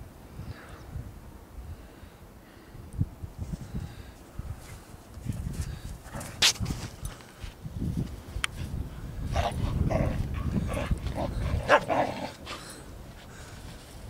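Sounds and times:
dogs barking and yipping: 0:10.3 - 0:12.6.

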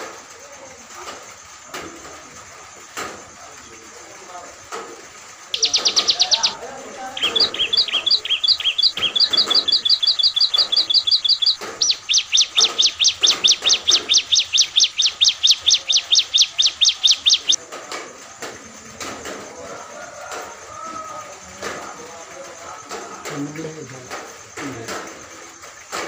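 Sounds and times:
bird singing: 0:00.0 - 0:17.7, 0:18.3 - 0:26.0.

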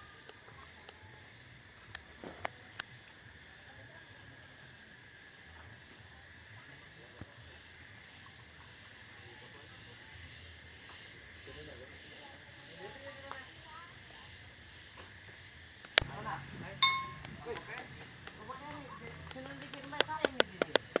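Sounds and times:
high-pitched insect chorus: 0:00.0 - 0:21.0.

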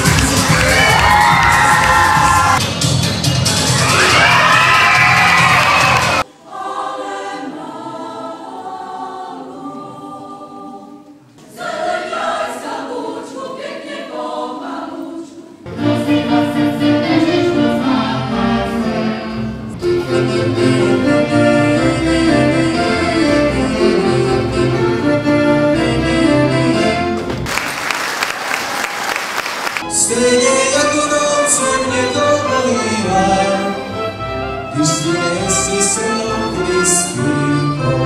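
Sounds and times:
folk dance music: 0:00.0 - 0:07.8, 0:15.7 - 0:38.0
women's choir singing: 0:06.0 - 0:27.2.

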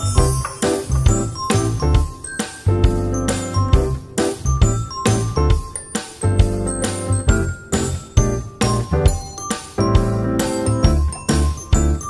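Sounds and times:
bright melody over steady beat: 0:00.0 - 0:12.0.

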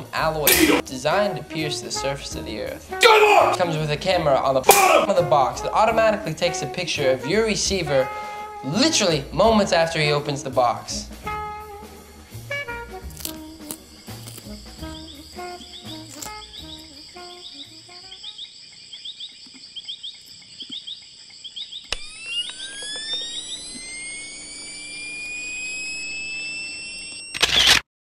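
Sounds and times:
music: 0:00.0 - 0:18.2
crickets chirping: 0:13.1 - 0:27.3
camera flash charging whine: 0:21.8 - 0:27.9
camera shutter click: 0:27.3 - 0:27.8.

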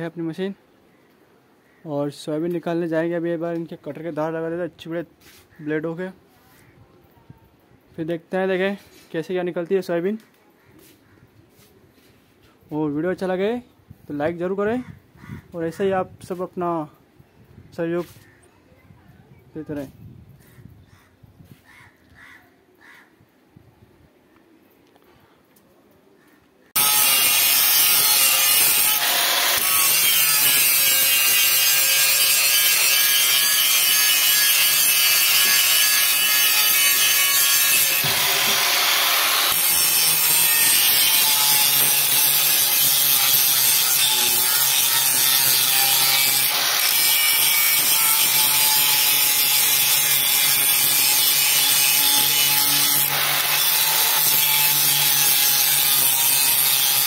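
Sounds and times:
angle grinder grinding steel: 0:26.8 - 0:57.0.

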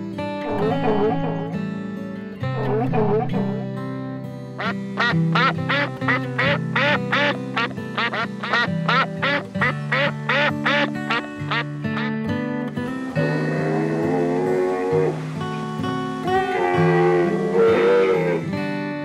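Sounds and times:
background music: 0:00.0 - 0:19.0
ducks quacking: 0:04.6 - 0:12.2.

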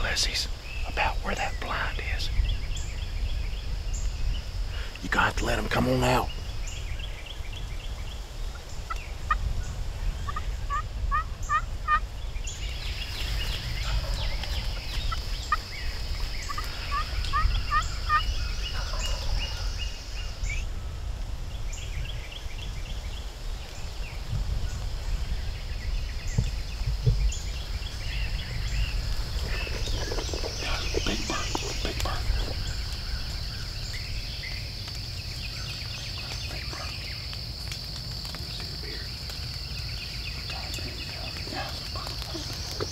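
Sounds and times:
wild turkeys gobbling: 0:10.3 - 0:12.0, 0:13.3 - 0:19.8, 0:29.0 - 0:42.9.

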